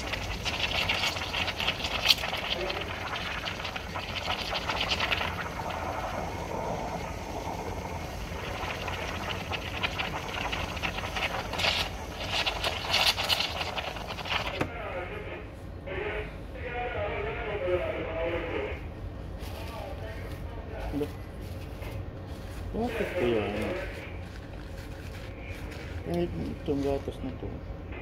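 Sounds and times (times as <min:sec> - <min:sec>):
steam wand hissing and sputtering: 0:00.0 - 0:14.7.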